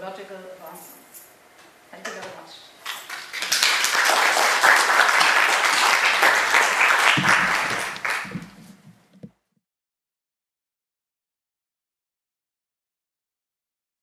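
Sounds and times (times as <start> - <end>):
audience applauding: 2.8 - 8.8.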